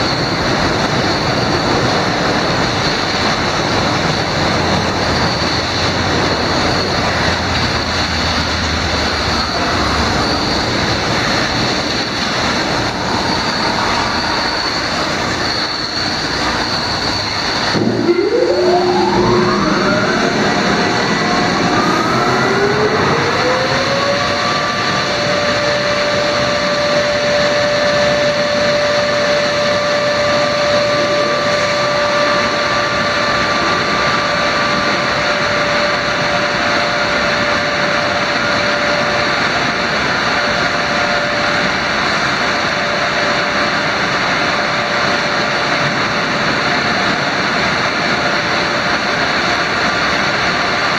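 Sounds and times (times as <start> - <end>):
dryer blower fans whining: 0.0 - 50.9
rush of air: 2.4 - 24.2.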